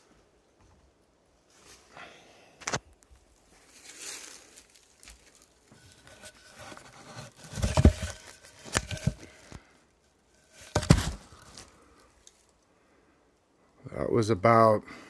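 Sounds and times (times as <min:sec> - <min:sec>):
straw rustling and crackling: 0:02.9 - 0:09.7, 0:10.3 - 0:12.6
wood block knocking: 0:10.7 - 0:11.2.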